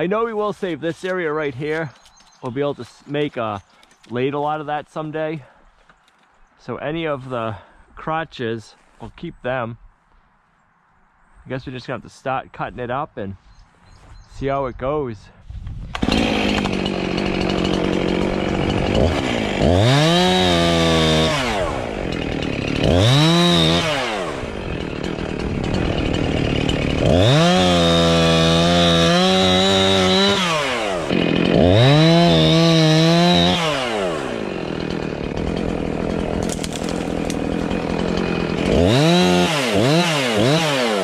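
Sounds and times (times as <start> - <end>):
chainsaw idling and revving: 15.9 - 41.0.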